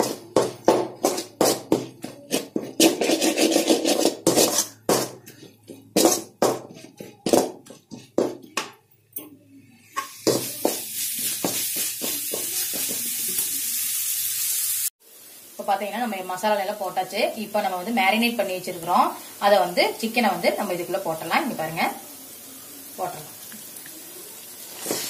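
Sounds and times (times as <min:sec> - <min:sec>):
frying sizzle: 0:00.0 - 0:01.9, 0:09.8 - 0:25.0
metal spatula scraping pan: 0:00.0 - 0:08.5.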